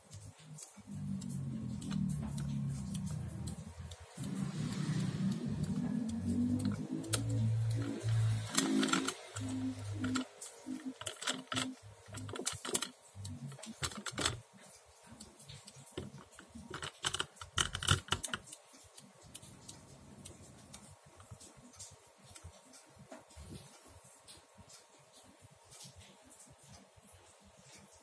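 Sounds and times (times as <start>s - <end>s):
toys clicking on tabletop: 0.9s - 14.5s, 15.1s - 21.5s.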